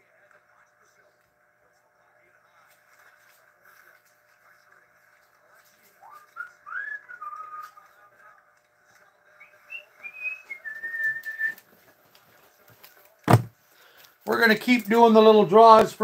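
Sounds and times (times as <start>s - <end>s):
person whistling a tune: 6.2s - 7.8s, 9.7s - 11.6s
thump: 13.3s - 13.5s.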